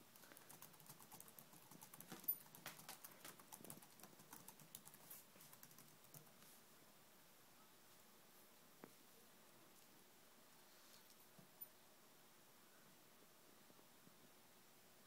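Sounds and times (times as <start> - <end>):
dog claws tapping and scrabbling: 0.2 - 5.8.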